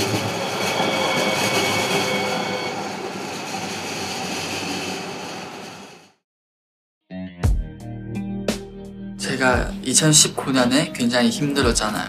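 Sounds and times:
light rail train passing: 0.0s - 6.2s.

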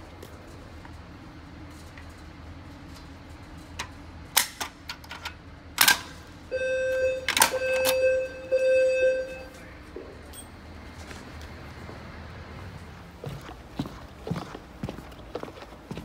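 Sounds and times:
fire alarm pull station clicks: 3.8s - 9.6s
electronic buzzing beep: 6.5s - 9.6s.

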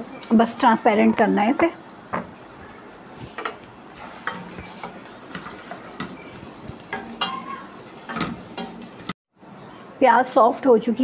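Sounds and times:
wooden spatula scraping metal pot: 3.3s - 9.1s.

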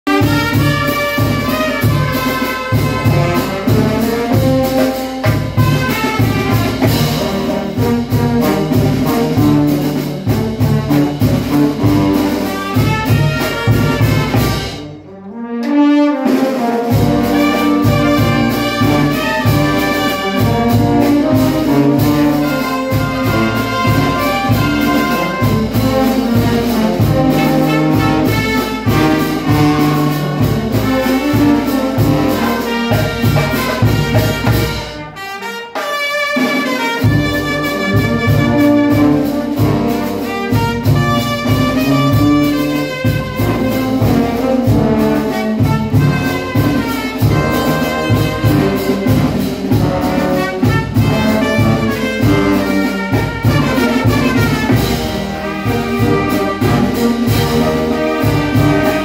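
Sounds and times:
brass band playing: 0.0s - 59.0s
snare drum: 0.0s - 59.0s.

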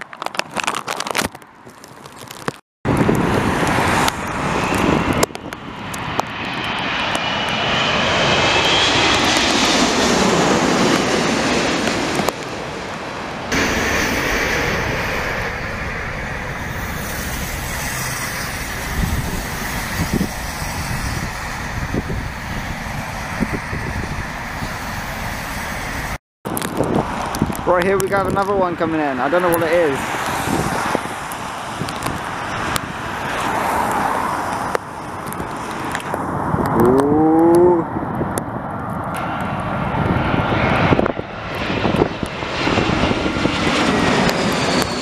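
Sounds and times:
road traffic: 0.0s - 40.8s
jet plane passing overhead: 2.9s - 45.0s
lorry passing close by: 6.8s - 26.2s.

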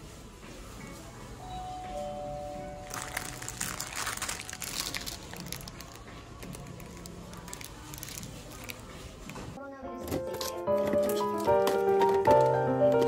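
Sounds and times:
plastic bags crinkling: 2.8s - 9.6s.

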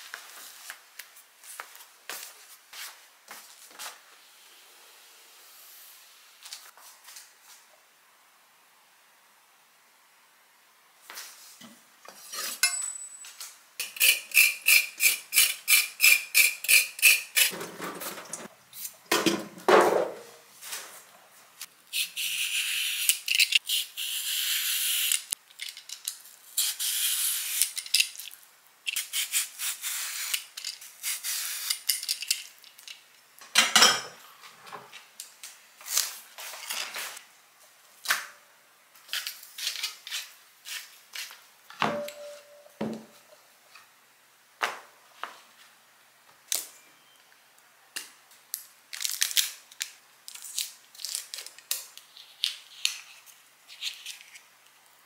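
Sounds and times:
peeler scraping cucumber: 13.8s - 17.5s.

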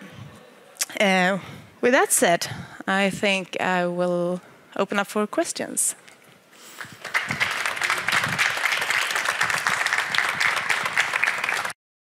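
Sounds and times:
audience applauding: 6.8s - 11.8s.

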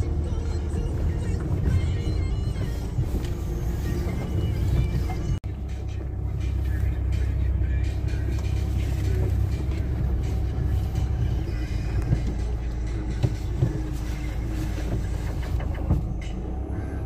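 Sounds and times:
car engine and tyre rumble: 0.0s - 17.0s.

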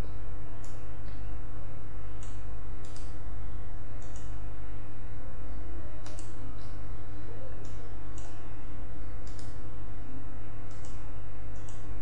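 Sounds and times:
steady low hum with tones: 0.0s - 12.0s
computer mouse clicking: 2.2s - 3.2s, 4.0s - 4.4s, 6.0s - 6.4s, 7.6s - 8.4s, 9.2s - 9.6s, 10.7s - 11.9s.

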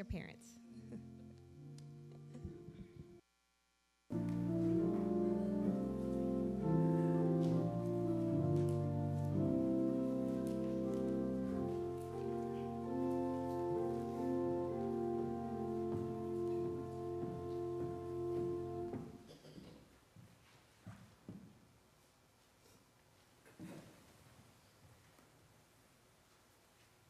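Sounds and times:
church organ playing: 4.1s - 19.2s.

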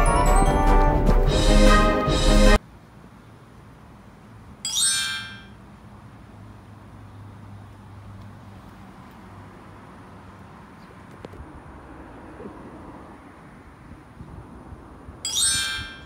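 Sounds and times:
background music: 0.0s - 2.6s
outdoor ambience with low hum: 2.1s - 16.0s.

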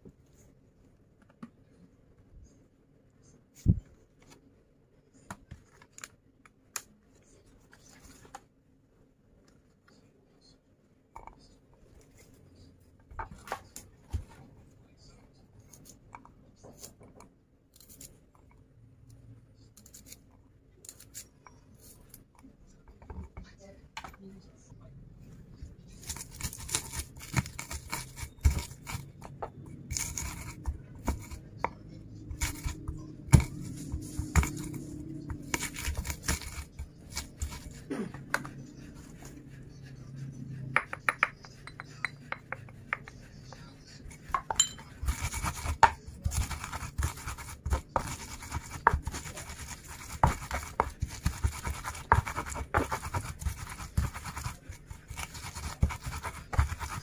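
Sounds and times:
pestle pounding in wooden mortar: 26.4s - 38.5s, 44.3s - 57.0s.

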